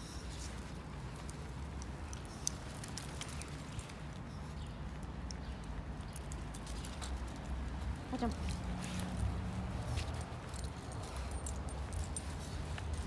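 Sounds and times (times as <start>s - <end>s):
dog paws pattering on asphalt: 0.0s - 13.0s.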